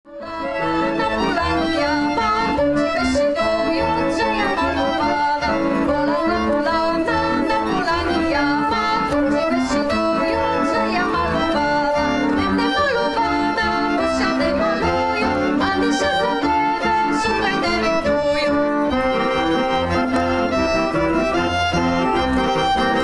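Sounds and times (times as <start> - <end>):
instrumental folk dance music: 0.1 - 23.0.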